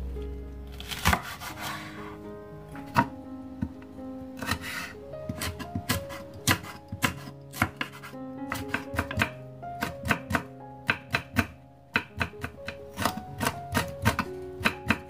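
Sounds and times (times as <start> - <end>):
background guitar music: 0.0 - 15.0
knife chopping on wooden board: 0.8 - 1.8, 4.4 - 15.0.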